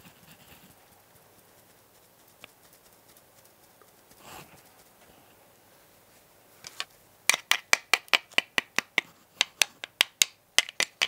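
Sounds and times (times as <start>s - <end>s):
rod tapping plastic: 6.7s - 11.0s.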